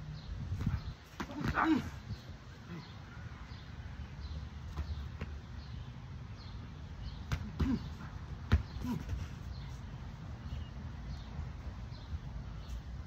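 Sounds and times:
wind rumble on microphone: 0.0s - 1.0s
bird chirping: 1.8s - 12.9s.

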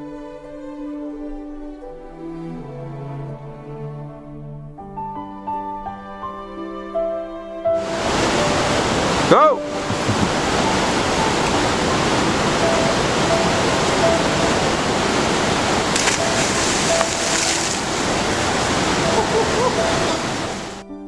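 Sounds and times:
whitewater rapids rushing: 7.8s - 20.8s.

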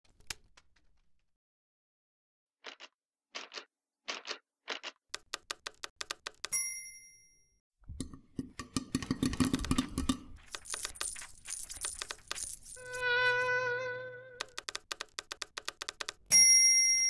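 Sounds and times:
typewriter bell ding: 6.5s - 7.5s, 16.3s - 17.0s
metallic clinks and jingling: 10.4s - 13.0s.

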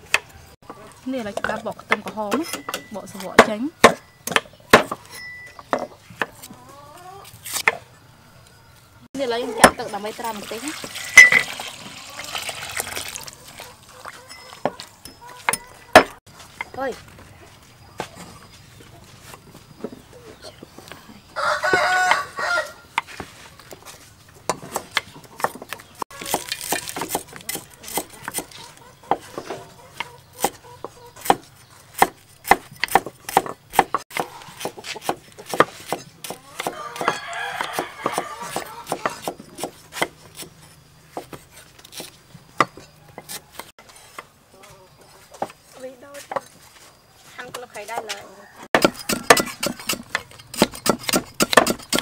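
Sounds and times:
knives chopping on wooden boards: 1.4s - 5.1s, 14.6s - 16.7s, 24.4s - 44.3s, 47.5s - 52.0s
rooster crowing: 21.4s - 22.9s, 36.4s - 39.1s, 48.2s - 49.8s.

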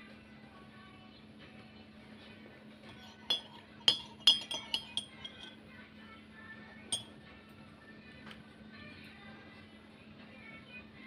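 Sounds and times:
ceramic tableware clinking: 2.9s - 5.6s, 6.9s - 7.1s.

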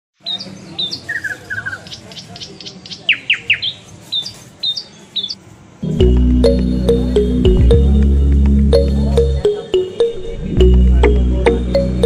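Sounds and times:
birds chirping: 0.2s - 12.0s
music with heavy bass: 5.8s - 12.0s.

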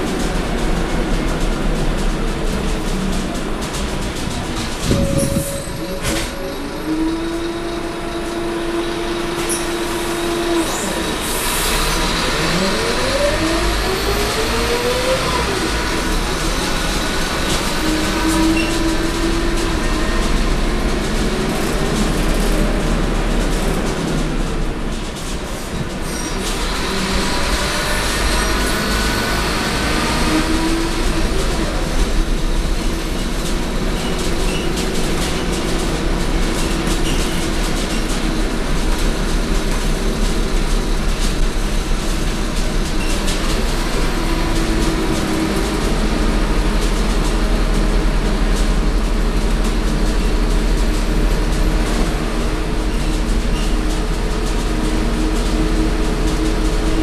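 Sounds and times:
bus diesel engine rumbling: 0.0s - 57.0s
road noise: 0.0s - 57.0s.

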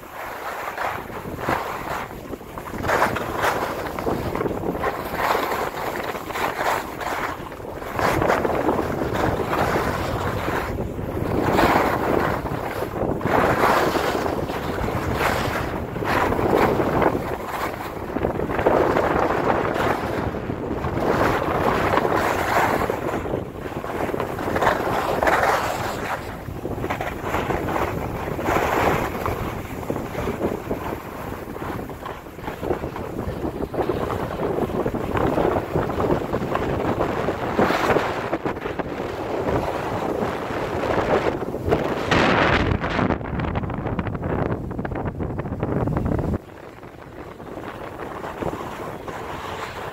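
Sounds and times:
wind on microphone: 0.0s - 49.9s
skis scraping on snow: 0.1s - 17.8s, 23.7s - 36.8s, 47.2s - 49.9s.

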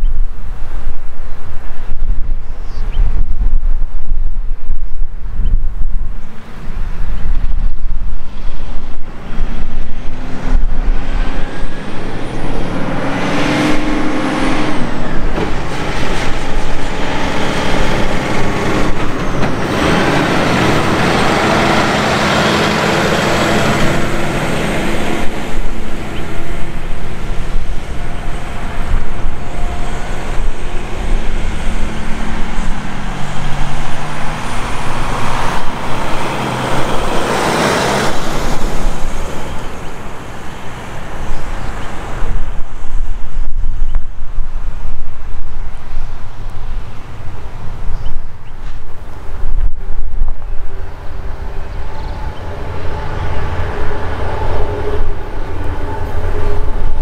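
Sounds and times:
freight train rumbling on track: 0.0s - 57.0s
wind buffeting microphone: 0.0s - 57.0s
locomotive engines humming: 6.1s - 57.0s.

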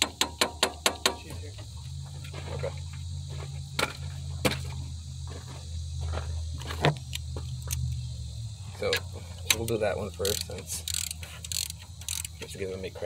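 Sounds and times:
high insect drone: 0.0s - 13.0s
steady low hum: 0.1s - 13.0s.

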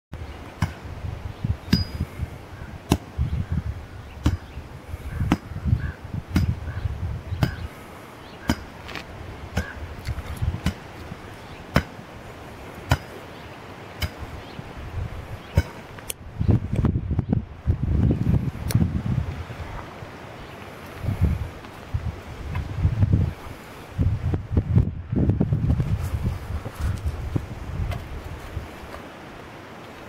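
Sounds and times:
digging tool striking hard soil: 2.9s - 3.2s, 4.2s - 4.5s, 5.2s - 5.6s, 6.3s - 6.6s, 7.4s - 7.7s, 8.4s - 8.8s, 9.5s - 9.8s, 10.5s - 11.0s, 11.7s - 12.0s, 12.8s - 13.2s, 14.0s - 14.3s, 15.5s - 15.9s.

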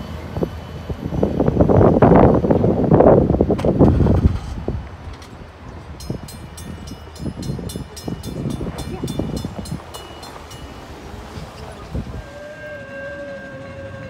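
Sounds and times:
crossing warning bell dings: 5.0s - 14.0s.

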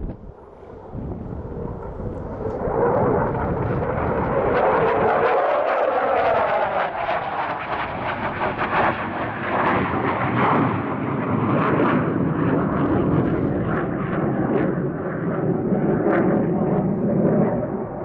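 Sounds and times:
fighter jet passing overhead: 0.0s - 18.0s.

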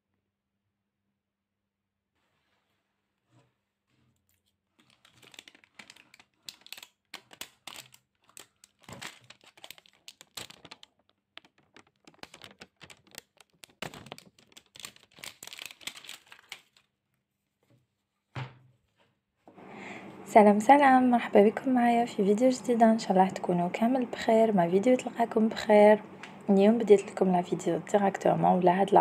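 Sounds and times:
cardboard tube clicks and rustles: 4.8s - 16.8s.

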